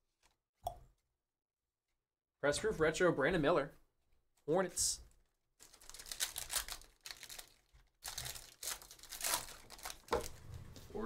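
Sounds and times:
foil wrapper tearing and crinkling: 5.6 - 10.4.

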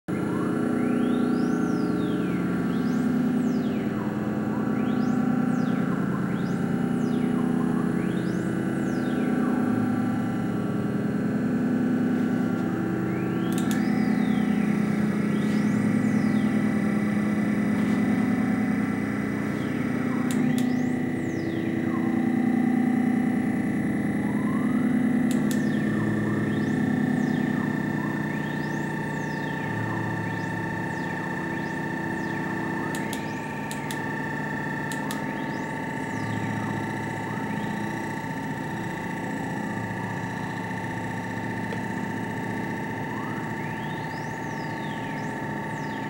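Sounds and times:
low synth drone: 0.1 - 46.0
sustained high pitch: 0.1 - 46.0
sharp click: 13.4 - 13.9, 20.2 - 20.8, 25.2 - 25.8, 32.9 - 34.0, 34.8 - 35.4.

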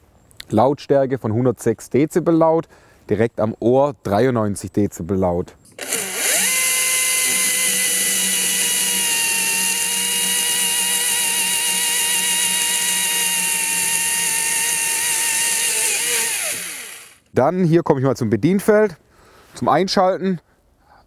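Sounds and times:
battery chainsaw cutting log: 5.7 - 17.3.

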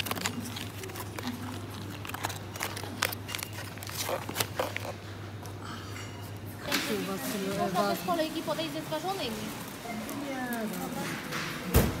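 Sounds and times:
plastic snack pouches crinkling: 0.0 - 5.6.

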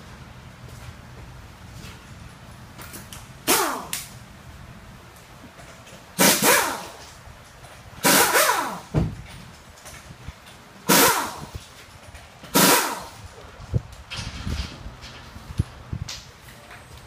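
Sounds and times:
pneumatic air tool bursts: 3.4 - 4.1, 6.2 - 7.0, 8.0 - 8.9, 10.8 - 11.6, 12.5 - 13.2.

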